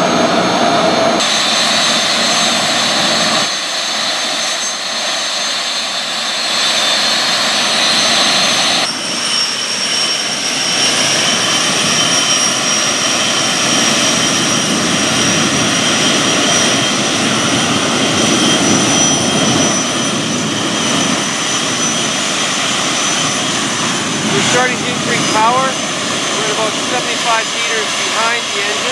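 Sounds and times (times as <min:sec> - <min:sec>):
high-pitched turbine whine: 0:00.0 - 0:28.9
gas turbine running: 0:10.2 - 0:28.9.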